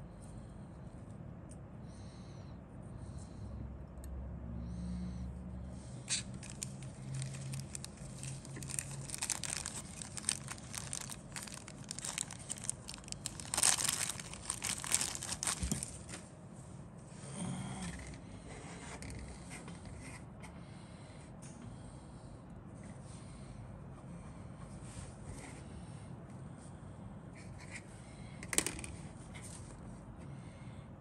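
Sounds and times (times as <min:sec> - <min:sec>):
plastic bag crinkling: 0:06.2 - 0:16.2.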